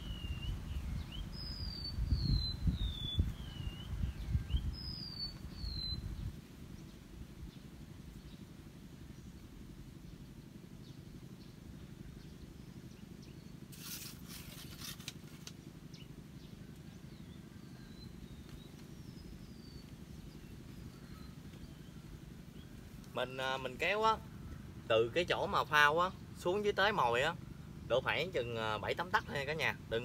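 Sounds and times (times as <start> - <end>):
faint bird chirps: 0.0 - 7.6, 15.9 - 30.0
steady low rumble: 0.0 - 13.7, 15.6 - 30.0.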